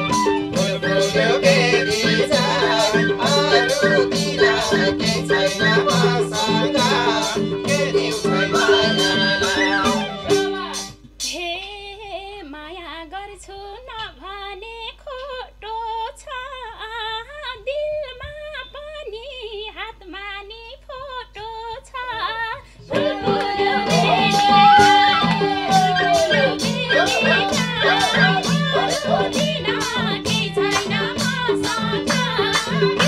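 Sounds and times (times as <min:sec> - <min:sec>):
folk band drums and harmonium: 0:00.0 - 0:11.3, 0:22.9 - 0:33.0
woman singing: 0:00.0 - 0:33.0.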